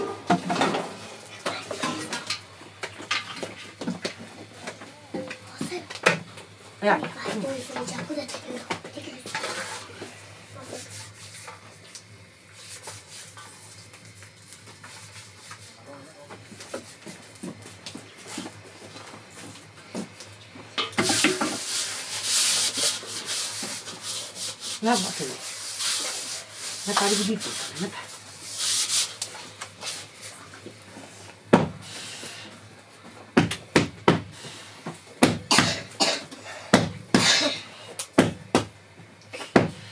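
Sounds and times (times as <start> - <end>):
hands scraping flour in metal bowl: 21.0 - 30.1
hand slapping dough on cushion: 35.2 - 35.8.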